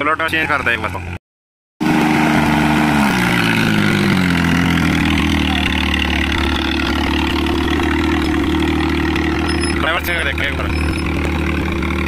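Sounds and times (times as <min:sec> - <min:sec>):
tractor diesel engine running: 0:01.8 - 0:12.0.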